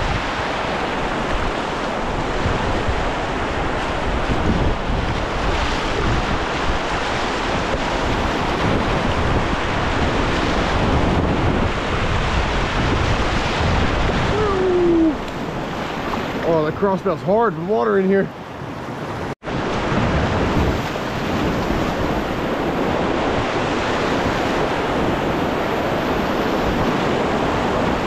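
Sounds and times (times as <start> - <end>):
whitewater rushing: 0.0 - 18.6.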